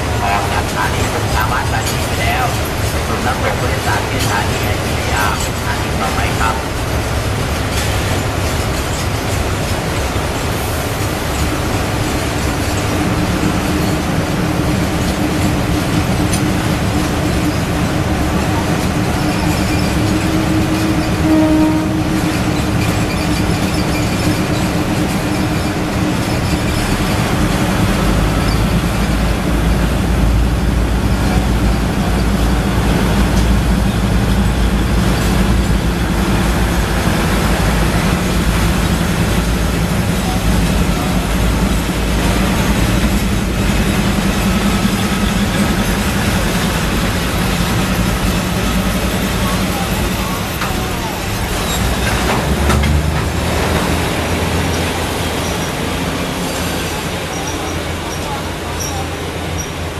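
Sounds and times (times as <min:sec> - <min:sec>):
freight train wheels rattling: 0:00.0 - 0:59.9.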